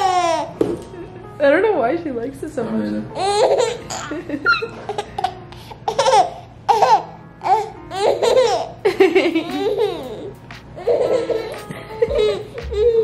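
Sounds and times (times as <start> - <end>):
baby laughing: 0.0 - 0.6, 3.2 - 13.0.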